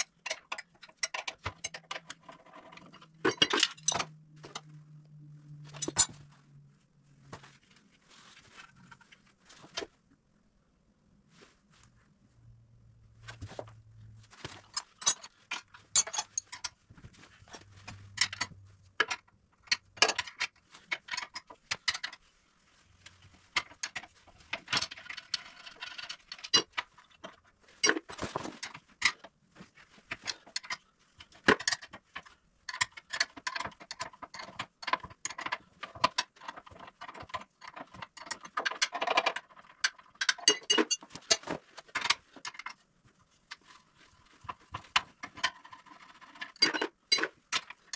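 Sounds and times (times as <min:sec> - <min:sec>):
metal tools clinking: 0:03.2 - 0:04.6, 0:05.7 - 0:06.2, 0:14.7 - 0:15.3, 0:15.9 - 0:16.7, 0:40.4 - 0:41.4.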